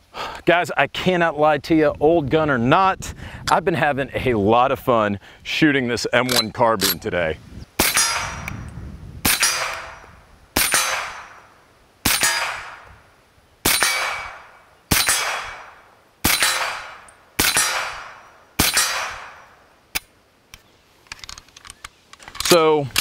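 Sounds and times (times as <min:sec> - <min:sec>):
gunshot echo: 0:07.8 - 0:08.6, 0:09.2 - 0:11.5, 0:12.1 - 0:13.0, 0:13.6 - 0:19.6
suppressed rifle shots: 0:07.8 - 0:08.6, 0:09.2 - 0:13.0, 0:13.6 - 0:20.1.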